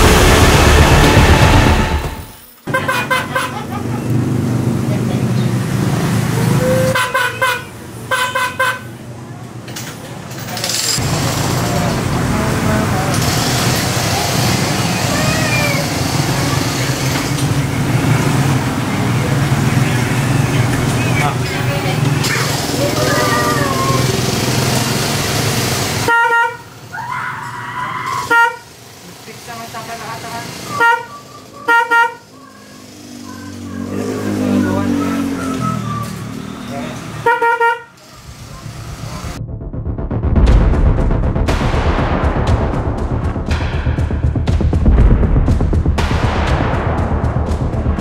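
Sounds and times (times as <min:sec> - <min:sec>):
scooter horn tooting: 0:02.7 - 0:03.7, 0:06.6 - 0:09.0, 0:26.1 - 0:26.8, 0:28.2 - 0:28.7, 0:30.7 - 0:32.4, 0:37.2 - 0:38.0
noisy rush with low hum: 0:38.3 - 0:48.0.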